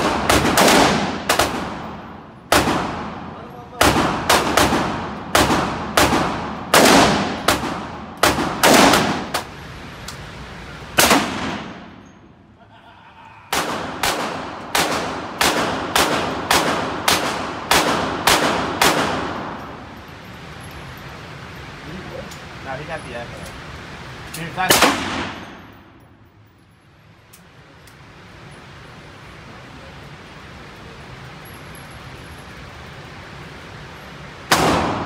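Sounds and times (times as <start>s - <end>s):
rapid gunfire with echo: 0.0s - 9.5s, 11.0s - 11.9s, 13.5s - 19.6s, 24.7s - 25.5s, 34.5s - 35.0s.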